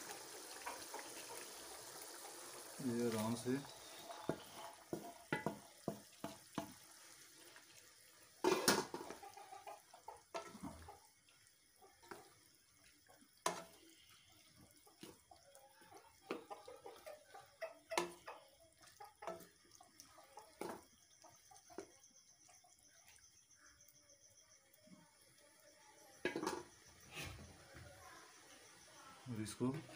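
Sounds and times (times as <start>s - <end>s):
wet sloshing stirring: 3.0s - 6.8s
spoon knocking and scraping pan: 3.6s - 6.8s, 8.4s - 9.2s, 10.3s - 10.9s, 13.4s - 13.8s, 17.8s - 18.4s, 20.6s - 20.8s, 26.2s - 26.8s.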